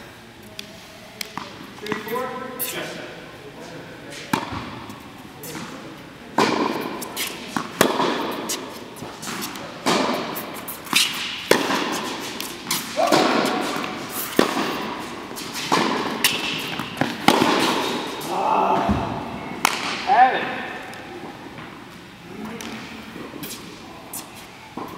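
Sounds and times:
tennis ball bouncing on court: 0:04.3 - 0:04.8, 0:06.4 - 0:18.2
tennis ball struck with rackets: 0:04.3 - 0:04.8, 0:06.4 - 0:18.2, 0:18.9 - 0:20.0.

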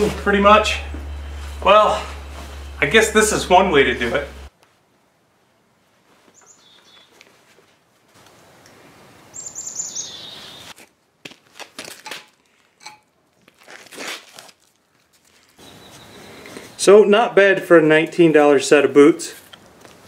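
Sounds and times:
steady rush of noise: 0:00.0 - 0:04.8
small bird chirping: 0:06.3 - 0:07.2, 0:09.3 - 0:10.7, 0:15.6 - 0:16.8.

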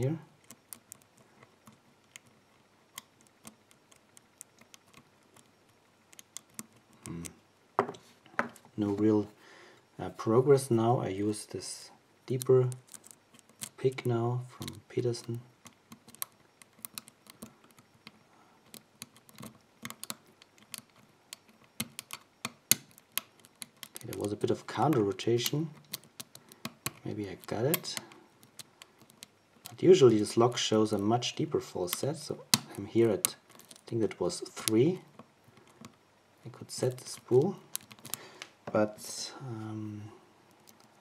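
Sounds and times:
lock pick clicking in lock: 0:12.4 - 0:13.8, 0:15.6 - 0:29.8, 0:31.9 - 0:33.9, 0:36.8 - 0:38.2.

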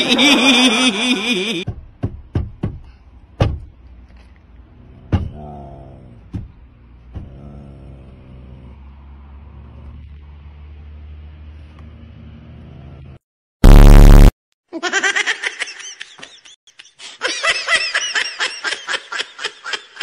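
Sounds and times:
knocks on a car window: 0:01.7 - 0:03.7
short falling whine: 0:13.6 - 0:14.3.

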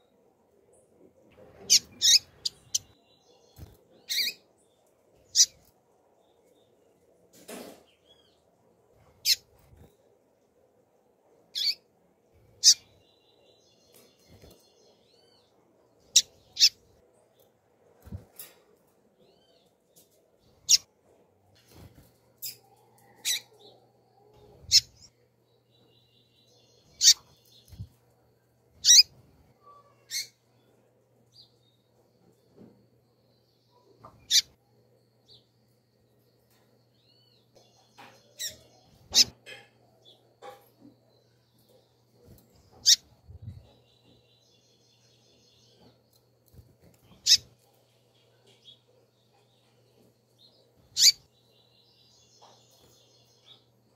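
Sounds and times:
bird high-pitched chirps: 0:01.6 - 0:03.0, 0:03.6 - 0:04.4, 0:05.3 - 0:05.7, 0:11.6 - 0:11.8, 0:12.6 - 0:13.0, 0:16.1 - 0:16.8, 0:22.4 - 0:25.1, 0:26.5 - 0:27.9, 0:28.8 - 0:30.4, 0:33.7 - 0:34.6, 0:38.0 - 0:39.4, 0:42.3 - 0:44.2, 0:47.0 - 0:47.6, 0:50.9 - 0:51.3
bird giving sharp high calls: 0:28.8 - 0:29.1, 0:51.0 - 0:51.2.

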